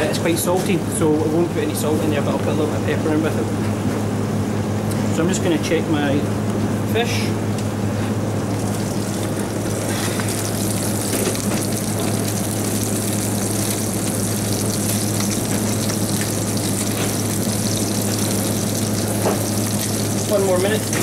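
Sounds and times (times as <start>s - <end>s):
low hum of kitchen equipment: 0.0s - 21.0s
fish sizzling in a pan: 8.5s - 21.0s.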